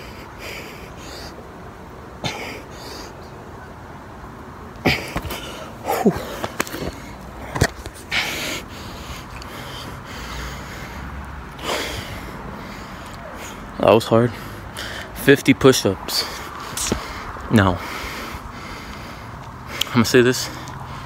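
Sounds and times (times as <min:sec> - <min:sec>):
person breathing heavily: 0:00.0 - 0:01.6, 0:02.2 - 0:03.4, 0:04.8 - 0:15.2, 0:16.1 - 0:21.0
person grunting: 0:04.8 - 0:06.4.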